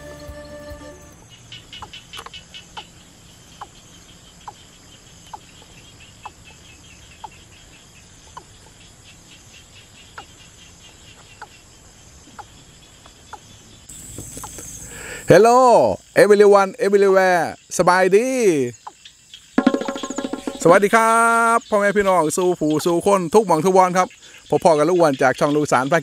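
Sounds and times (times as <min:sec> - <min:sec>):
background music: 0:00.0 - 0:01.2, 0:19.6 - 0:21.0
insects pulsing: 0:00.0 - 0:26.0.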